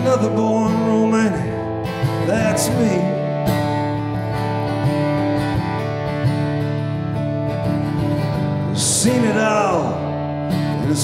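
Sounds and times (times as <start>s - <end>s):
person singing: 0.0s - 1.6s, 2.2s - 3.4s, 8.7s - 10.1s
acoustic guitar strumming chords: 0.0s - 11.0s.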